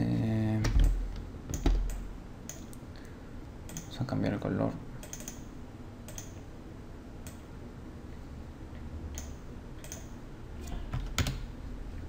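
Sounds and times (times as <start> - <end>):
low steady hum: 0.0 - 12.0
computer mouse clicks: 5.0 - 5.5, 6.1 - 6.4, 9.1 - 10.1.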